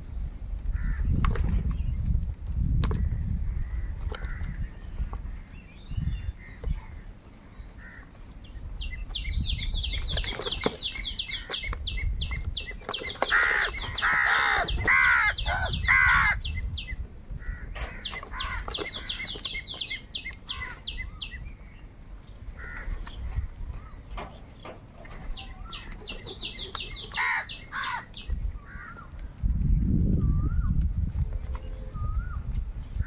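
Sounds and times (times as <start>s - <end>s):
crows cawing: 7.8s - 8.1s, 13.2s - 16.4s, 17.4s - 19.3s, 20.5s - 20.9s, 22.6s - 23.0s, 27.1s - 29.1s.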